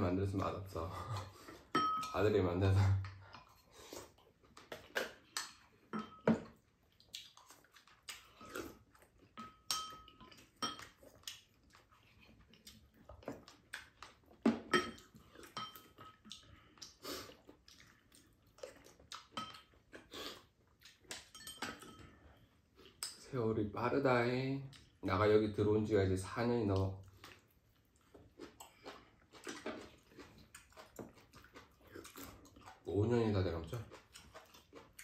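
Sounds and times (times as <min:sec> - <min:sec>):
quiet eating noises: 0:00.0 - 0:35.0
utensils clinking on ceramic bowls: 0:01.7 - 0:02.4, 0:05.3 - 0:06.5, 0:09.4 - 0:11.0, 0:14.7 - 0:16.2, 0:21.2 - 0:22.2.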